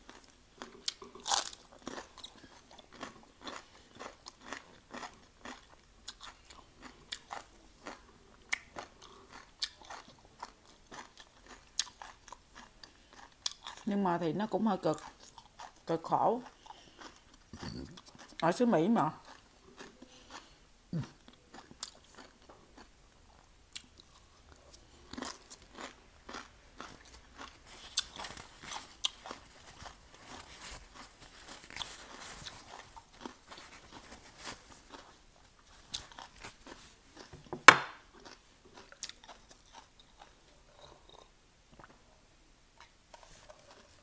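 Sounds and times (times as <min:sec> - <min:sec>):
crunching raw vegetables: 0:00.0 - 0:13.9, 0:23.7 - 0:41.9
loud knock: 0:37.6 - 0:38.0.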